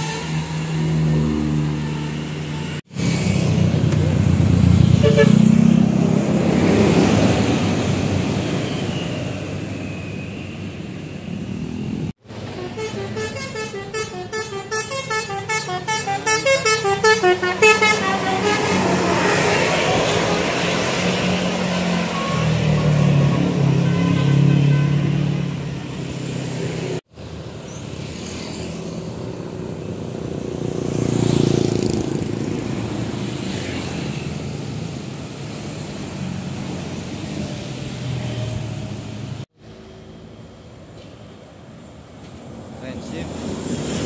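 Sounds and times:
buses passing: 0.0 - 44.0
musical air horn tune: 5.0 - 5.4, 12.4 - 20.8.

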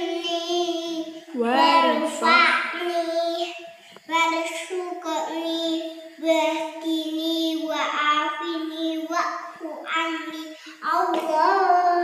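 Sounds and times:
girl chanting sing-song: 0.0 - 12.0.

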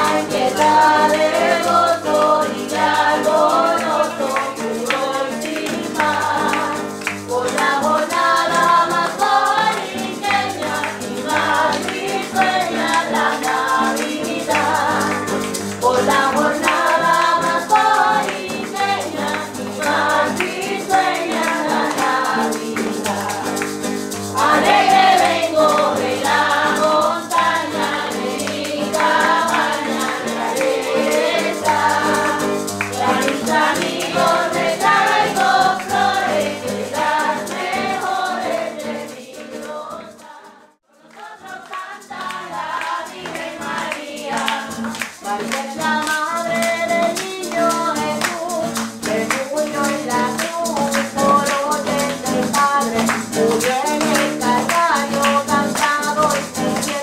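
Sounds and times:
group singing a carol: 0.0 - 57.0
musical accompaniment: 0.0 - 57.0
rattling percussion: 0.0 - 57.0.

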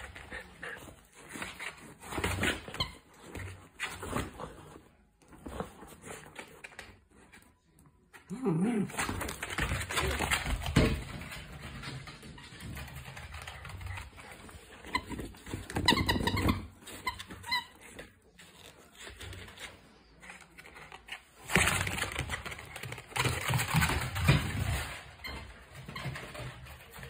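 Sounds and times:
rubber dog toy squeaking: 14.8 - 17.8.

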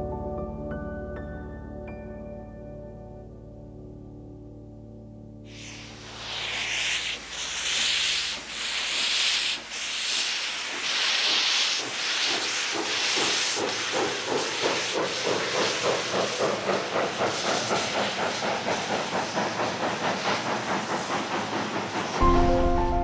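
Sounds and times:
steam locomotive chuffing: 5.5 - 23.0.

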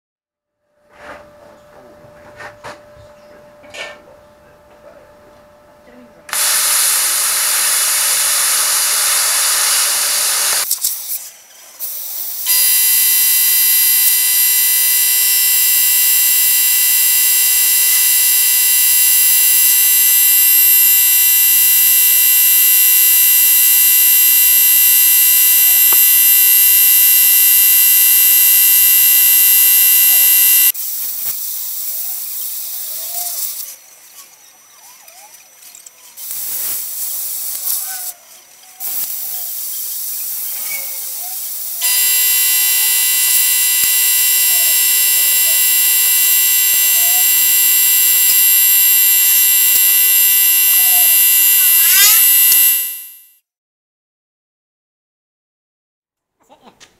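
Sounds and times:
plasma cutter hissing: 6.4 - 13.1, 36.2 - 37.9, 38.8 - 41.8, 51.6 - 52.2.

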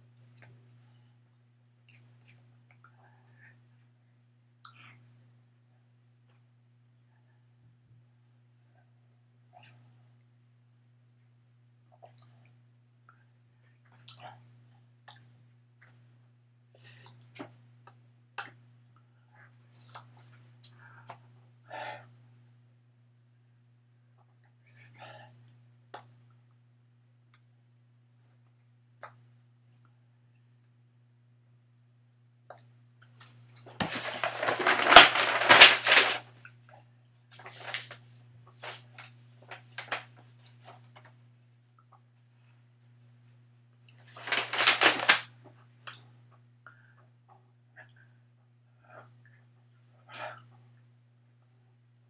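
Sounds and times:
faint low electrical hum: 0.0 - 52.0
paper map crinkling and rustling: 33.6 - 36.2, 37.4 - 41.1, 44.0 - 45.3.

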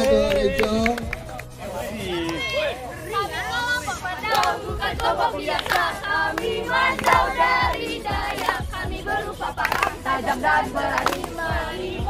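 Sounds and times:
group of voices singing: 2.4 - 12.0.

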